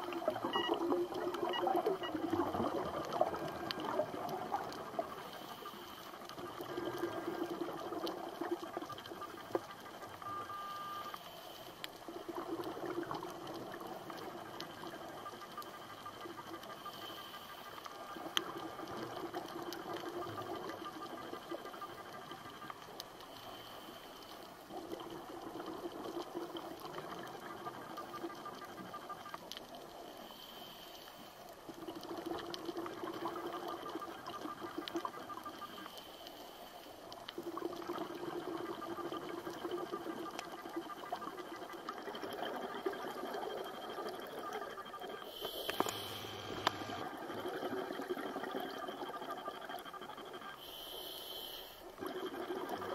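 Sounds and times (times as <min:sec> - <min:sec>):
faint clicks: 0:00.0 - 0:52.9
diver breathing through regulator: 0:45.2 - 0:47.0, 0:50.6 - 0:51.9.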